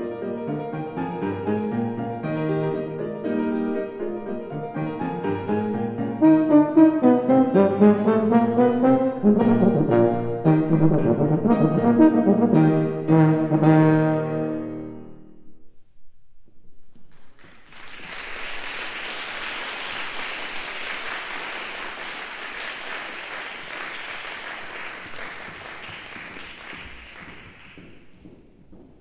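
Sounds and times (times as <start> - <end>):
euphonium and piano chord: 5.8 - 15.4
audience applauding: 17.1 - 28.2.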